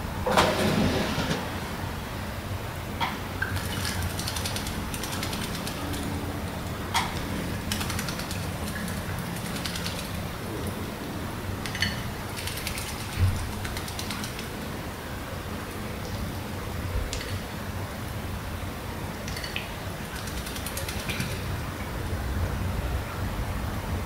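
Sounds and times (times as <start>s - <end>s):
bird splashing in water: 3.4s - 10.4s, 11.6s - 14.7s, 19.3s - 21.6s.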